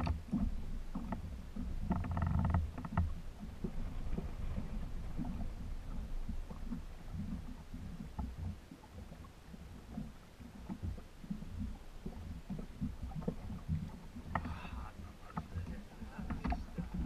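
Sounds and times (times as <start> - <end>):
water lapping against boat hull: 0.0 - 17.0.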